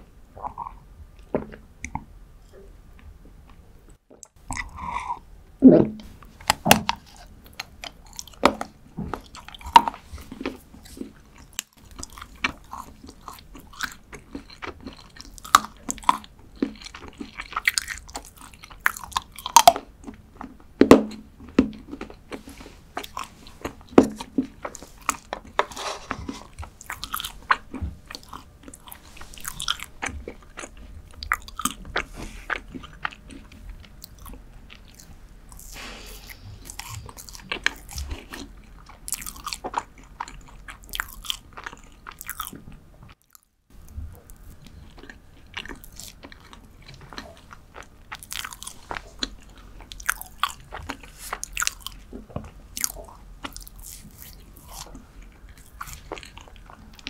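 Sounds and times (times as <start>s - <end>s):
wet mouth sounds: 0.4s - 2.7s, 4.1s - 19.8s, 21.7s - 42.7s
chocolate snapping and crunching: 36.6s - 42.6s, 44.2s - 57.0s.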